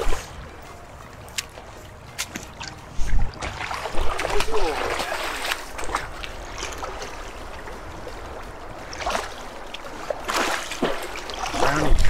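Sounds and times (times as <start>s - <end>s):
light water splashes: 0.0s - 12.0s
water running and lapping: 0.0s - 12.0s.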